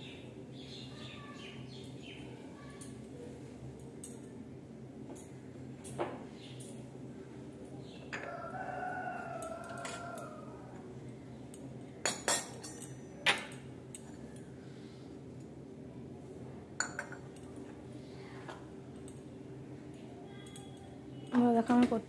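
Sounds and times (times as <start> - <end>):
metal vessels clinking: 16.8 - 17.5.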